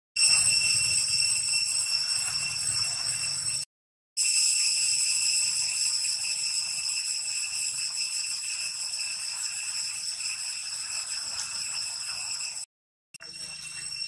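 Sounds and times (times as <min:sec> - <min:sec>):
high-pitched drone: 0:00.2 - 0:03.6.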